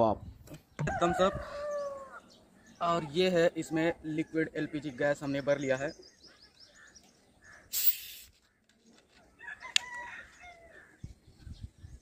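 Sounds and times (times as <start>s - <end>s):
rooster crowing: 0.9s - 2.2s, 9.4s - 10.9s
loud hiss: 7.7s - 8.3s.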